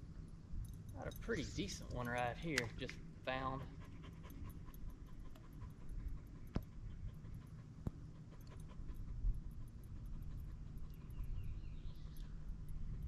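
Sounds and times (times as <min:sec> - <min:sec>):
low rumble: 0:00.0 - 0:13.0
sharp clicks: 0:01.8 - 0:03.0
dog panting: 0:03.3 - 0:13.0.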